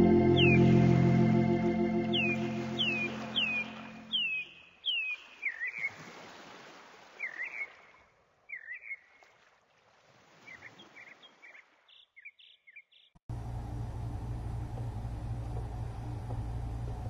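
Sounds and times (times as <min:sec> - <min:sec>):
birds chirping: 0:00.0 - 0:05.9.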